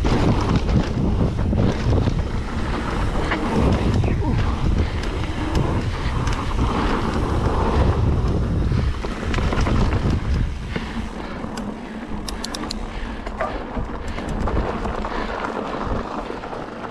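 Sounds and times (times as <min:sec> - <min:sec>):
tyre rumble on trail: 0:00.0 - 0:11.9, 0:13.0 - 0:16.9
wind buffeting microphone: 0:00.0 - 0:16.9
sharp clicks: 0:11.5 - 0:13.4.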